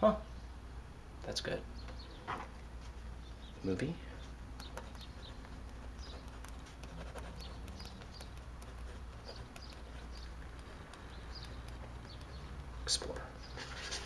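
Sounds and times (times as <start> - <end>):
room hum: 0.0 - 14.0
pen scratching on paper: 4.6 - 12.8.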